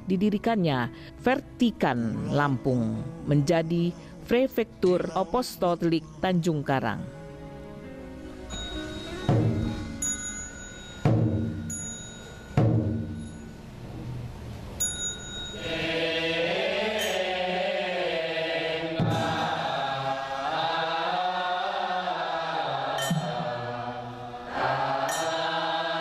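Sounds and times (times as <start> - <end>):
small high bell tinkles: 8.5 - 13.6, 14.8 - 15.6
deep ringing percussion strikes: 8.5 - 13.8
group of voices chanting: 15.6 - 26.0.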